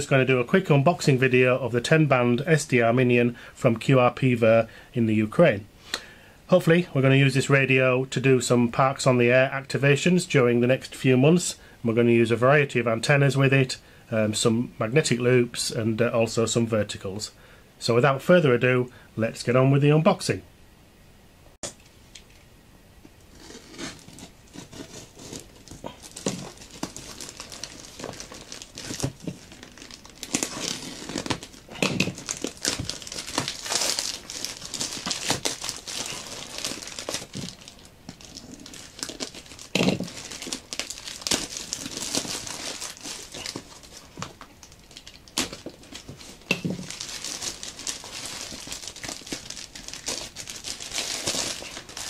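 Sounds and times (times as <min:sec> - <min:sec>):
plastic crinkling and ripping: 0:23.3 - 0:52.0.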